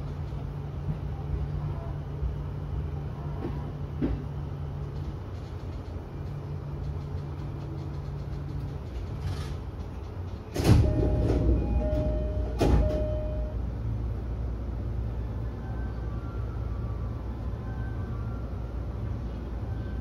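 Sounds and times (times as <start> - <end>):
electric train low hum: 0.0 - 20.0.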